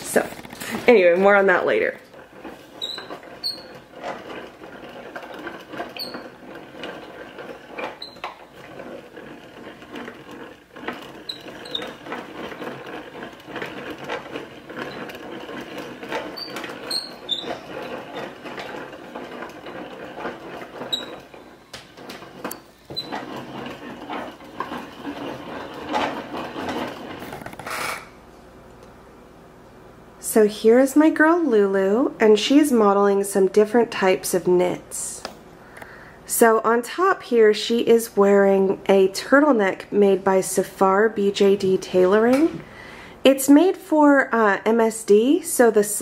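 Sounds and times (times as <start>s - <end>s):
yarn winder gears whirring: 0.0s - 28.1s
high squeaks: 1.4s - 28.2s.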